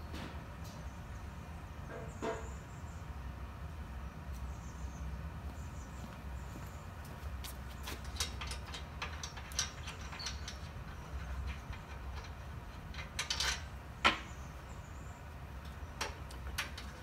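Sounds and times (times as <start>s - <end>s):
hand tools clinking on metal: 7.8s - 13.7s.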